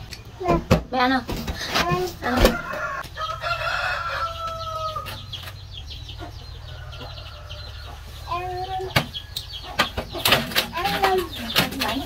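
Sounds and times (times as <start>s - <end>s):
small birds chirping: 0.0s - 12.0s
rooster crowing: 2.5s - 5.3s.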